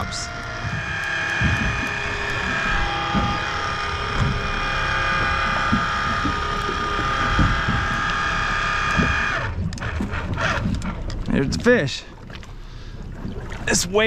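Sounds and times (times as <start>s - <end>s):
electric fishing reel whining: 0.0s - 10.8s.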